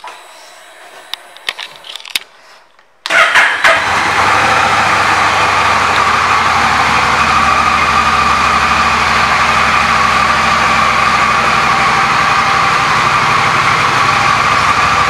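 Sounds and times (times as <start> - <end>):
motorcycle engine starting and idling: 3.0 - 15.0.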